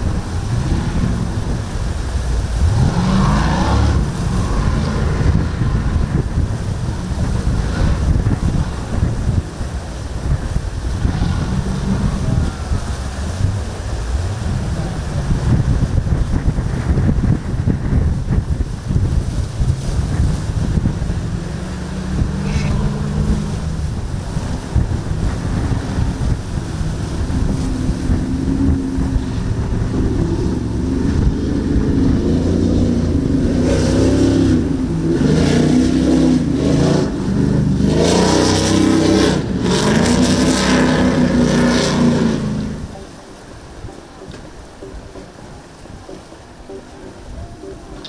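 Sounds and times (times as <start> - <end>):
powerboat engines running hard: 0.0 - 48.0
wind rumble on microphone: 0.0 - 48.0.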